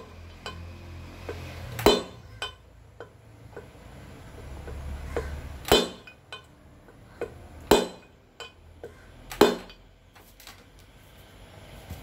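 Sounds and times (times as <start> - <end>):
mallet striking metal: 1.8 - 2.6, 5.6 - 6.5, 7.7 - 8.2, 9.4 - 9.8.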